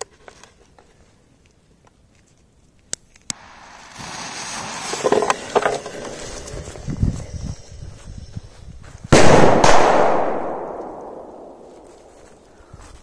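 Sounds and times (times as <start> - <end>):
fuse burning with hiss and crackle: 0.0 - 9.2.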